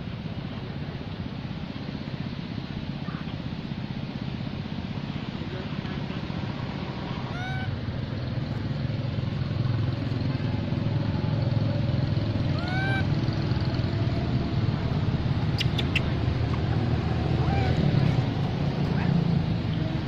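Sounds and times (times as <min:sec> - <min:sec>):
macaque calls: 0:07.2 - 0:07.8, 0:12.4 - 0:13.2, 0:15.5 - 0:16.2, 0:17.2 - 0:18.3.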